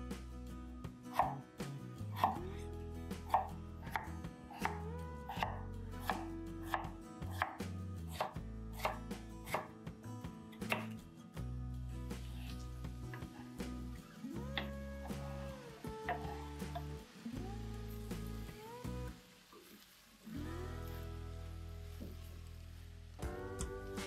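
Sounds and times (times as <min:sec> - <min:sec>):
soft background music: 0:00.0 - 0:24.0
knife chopping on cutting board: 0:01.1 - 0:01.4, 0:05.4 - 0:09.7.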